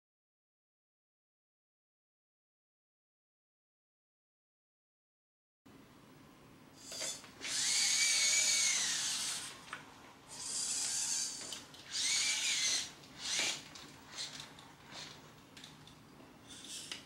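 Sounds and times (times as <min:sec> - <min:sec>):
robot motors whirring: 0:06.8 - 0:09.6, 0:10.3 - 0:15.2.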